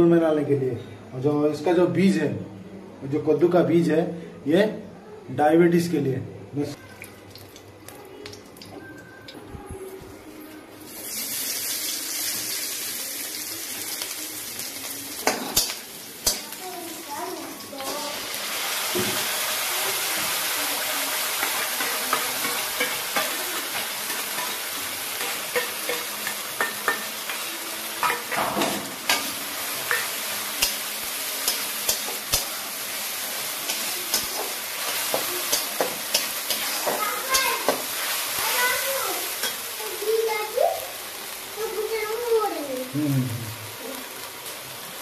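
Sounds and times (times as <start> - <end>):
paste sizzling in hot oil: 10.9 - 45.0.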